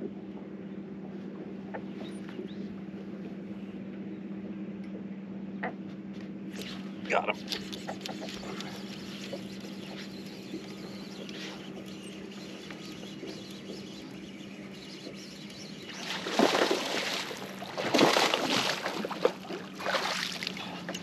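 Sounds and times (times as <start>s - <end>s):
low hum: 0.0s - 21.0s
fish splashing at surface: 16.0s - 20.5s.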